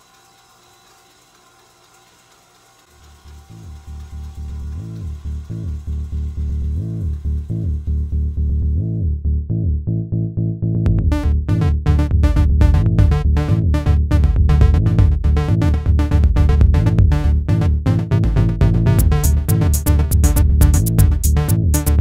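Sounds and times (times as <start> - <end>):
drum machine beat: 3.0 - 9.0, 10.9 - 22.0
synth bass line: 3.1 - 22.0.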